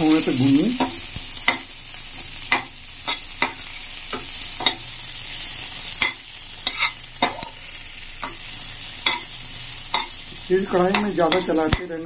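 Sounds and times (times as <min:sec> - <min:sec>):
onions sizzling in oil: 0:00.0 - 0:12.0
steel spatula scraping pan: 0:06.0 - 0:07.6.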